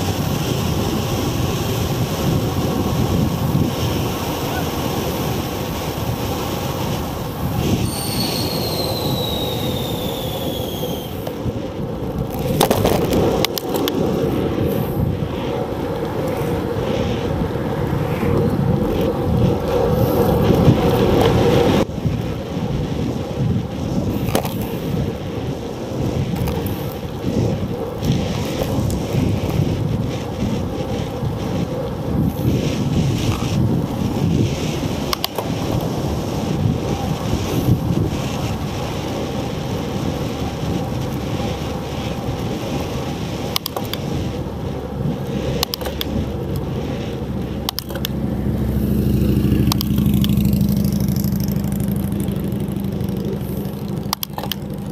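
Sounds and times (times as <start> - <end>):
high whine falling in pitch: 0.0 - 11.5
bicycle tyres rumbling on pavement: 0.0 - 54.9
wind on microphone: 0.0 - 54.9
sharp clicks: 43.5 - 44.0, 47.6 - 48.2, 53.6 - 54.9.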